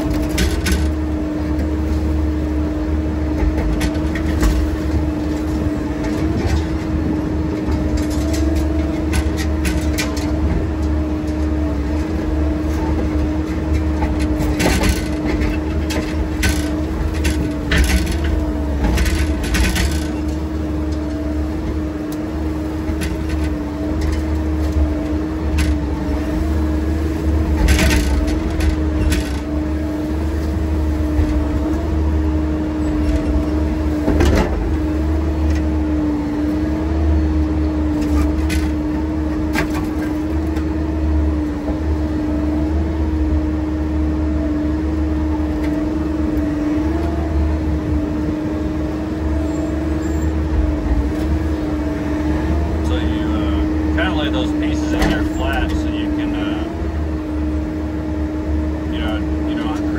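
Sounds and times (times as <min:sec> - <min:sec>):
excavator engine running: 0:00.0 - 0:59.9.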